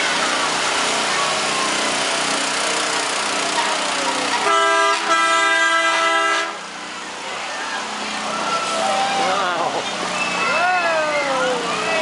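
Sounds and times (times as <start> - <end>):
steady noisy background: 0.0 - 12.0
vehicle horn honking: 4.4 - 6.6.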